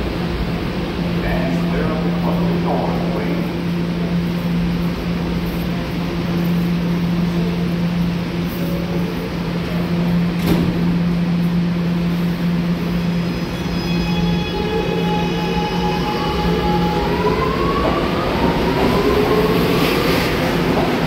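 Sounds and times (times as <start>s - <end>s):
subway equipment hum: 0.0s - 21.0s
train whining tones: 6.2s - 21.0s.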